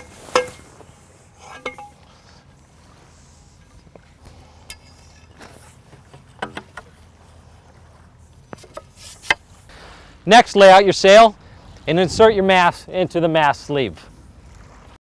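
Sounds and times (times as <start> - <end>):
metal tubes clinking and knocking: 0.0 - 0.8, 1.4 - 2.1.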